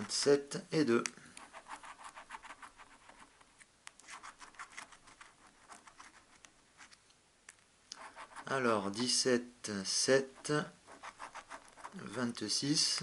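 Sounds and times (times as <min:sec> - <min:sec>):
scratching lottery ticket: 0:01.4 - 0:07.0, 0:08.0 - 0:08.6, 0:10.2 - 0:12.1.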